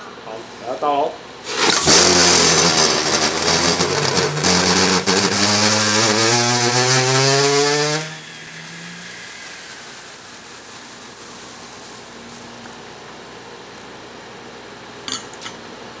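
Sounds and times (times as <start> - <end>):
steam hissing from pot: 1.4 - 13.1.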